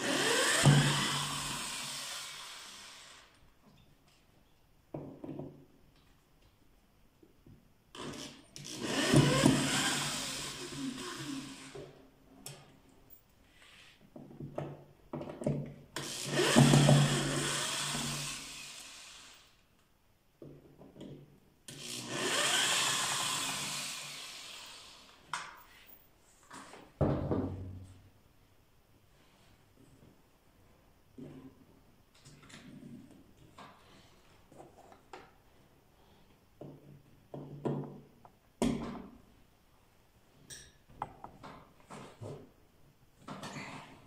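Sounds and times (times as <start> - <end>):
electric drill backing out screws: 0.0 - 3.4, 8.0 - 12.0, 16.0 - 19.5, 21.7 - 25.2.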